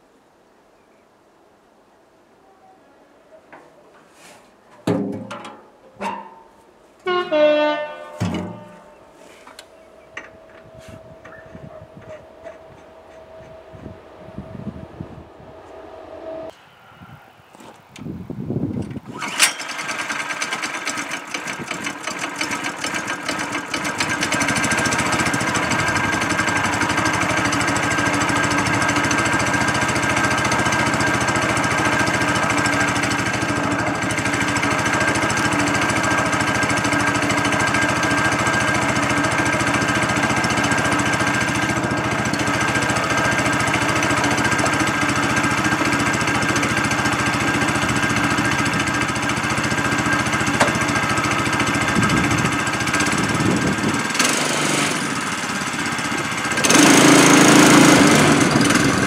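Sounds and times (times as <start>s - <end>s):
small engine idling: 19.0s - 59.0s.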